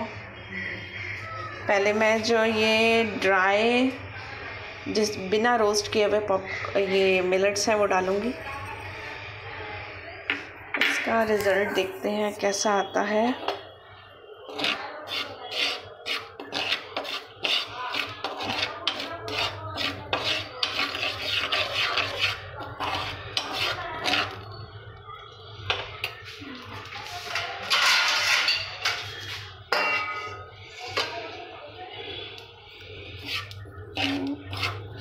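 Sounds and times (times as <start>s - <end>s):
metal spoon scraping salt in pan: 14.5s - 24.6s, 32.2s - 35.0s.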